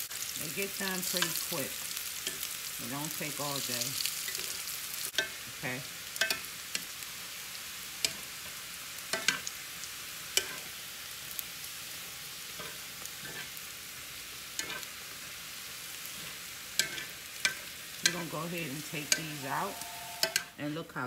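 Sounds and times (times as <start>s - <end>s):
fries sizzling in oil: 0.0s - 21.0s
metal tongs clicking on pan: 1.1s - 1.4s, 2.2s - 2.6s, 4.3s - 5.4s, 6.2s - 6.9s, 8.0s - 8.4s, 9.1s - 9.5s, 10.3s - 10.7s, 14.6s - 14.9s, 16.7s - 18.4s, 20.2s - 20.5s.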